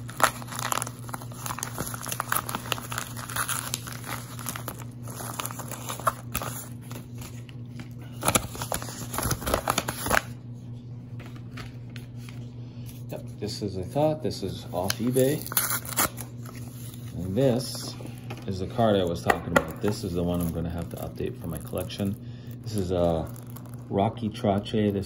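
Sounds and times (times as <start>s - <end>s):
paper mailer crinkling: 0.0s - 10.4s, 14.7s - 25.0s
paper rustling: 0.1s - 10.3s.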